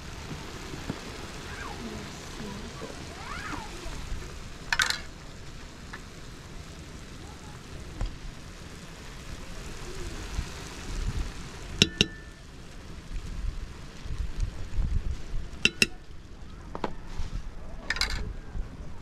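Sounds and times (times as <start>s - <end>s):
wind rumble on microphone: 0.0s - 19.0s
metal spoon clinking on pot: 11.8s - 12.3s, 15.6s - 16.0s.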